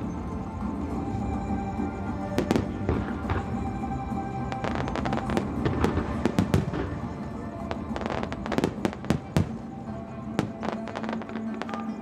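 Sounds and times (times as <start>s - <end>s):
music playing: 0.0s - 12.0s
fireworks bangs: 2.3s - 3.7s, 4.5s - 9.7s, 10.3s - 12.0s.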